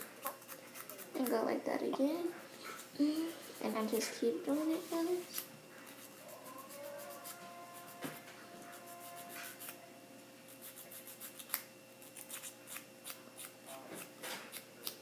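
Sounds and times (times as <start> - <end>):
nail buffer rubbing fingernail: 5.3 - 9.8, 10.5 - 13.5.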